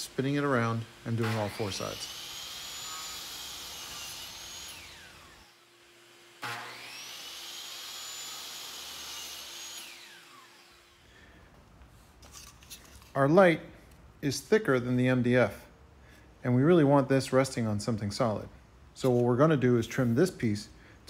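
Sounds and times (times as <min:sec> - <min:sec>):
miter saw motor whine: 0:00.9 - 0:05.6, 0:06.4 - 0:11.0.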